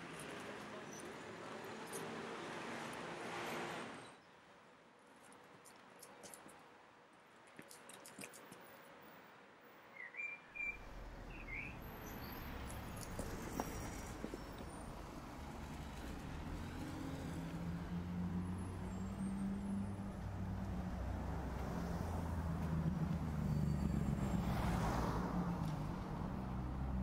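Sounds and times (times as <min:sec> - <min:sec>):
bird chirps: 0:09.9 - 0:12.5.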